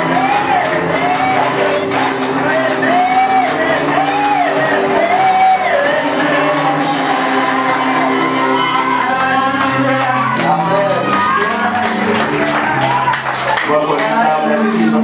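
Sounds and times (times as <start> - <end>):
keyboard and bass: 0.0 - 15.0
voices singing worship music: 0.0 - 15.0.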